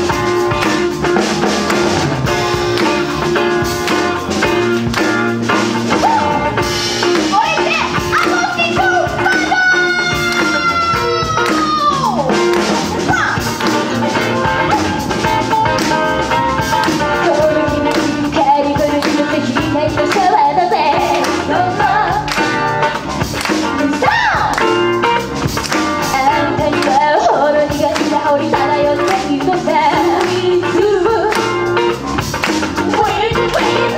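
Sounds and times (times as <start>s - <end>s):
pop band playing: 0.0s - 33.9s
steady drum beat: 0.0s - 33.9s
women singing: 17.1s - 22.5s, 23.8s - 24.6s, 26.0s - 31.7s, 32.8s - 33.9s.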